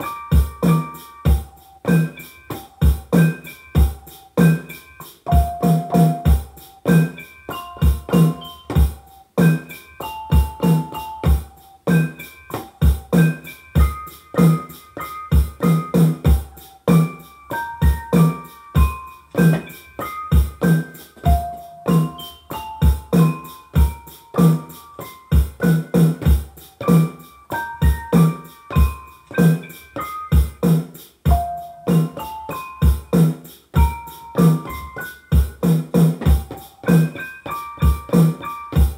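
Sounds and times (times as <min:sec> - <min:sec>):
piano-like keyboard melody: 0:00.0 - 0:38.9
drum hits: 0:05.3 - 0:09.7, 0:10.3 - 0:24.7, 0:25.3 - 0:37.2.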